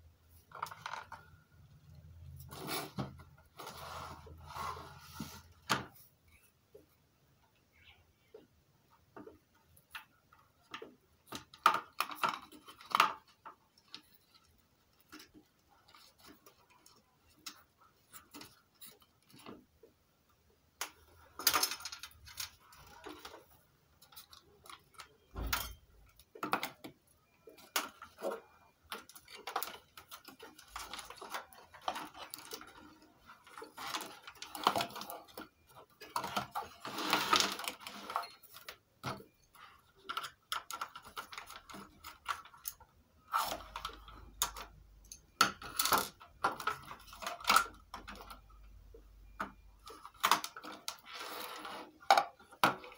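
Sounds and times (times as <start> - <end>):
hands handling wires and connectors: 20.8 - 48.5.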